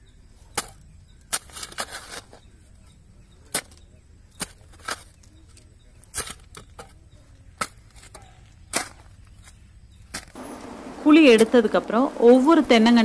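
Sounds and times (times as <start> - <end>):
hoe chopping into soil: 7.6 - 10.7.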